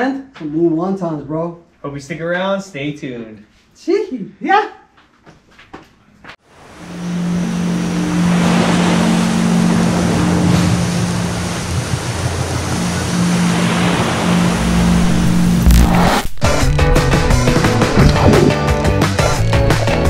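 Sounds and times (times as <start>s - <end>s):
waves washing onto beach: 6.5s - 15.6s
low drone: 6.5s - 20.0s
low thump: 17.6s - 18.6s.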